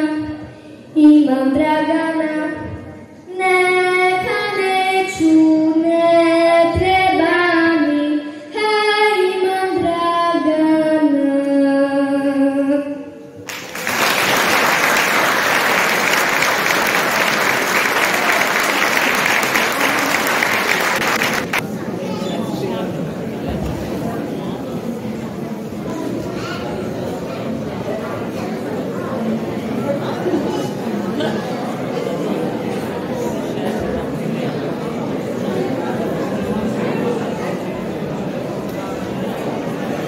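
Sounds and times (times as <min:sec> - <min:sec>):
girl singing into a microphone: 0:00.0 - 0:13.3
audience applause: 0:13.5 - 0:21.6.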